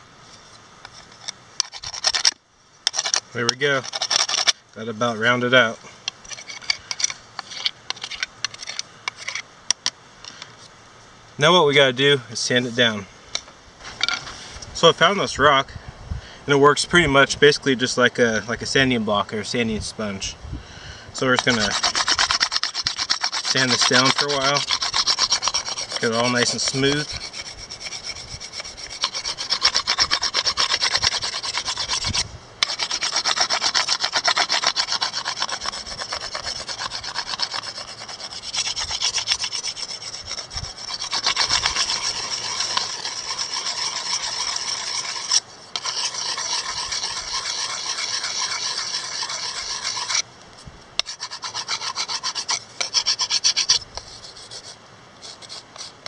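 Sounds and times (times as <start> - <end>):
rock sanding wood: 0.0 - 9.4, 21.2 - 50.2, 51.0 - 56.0.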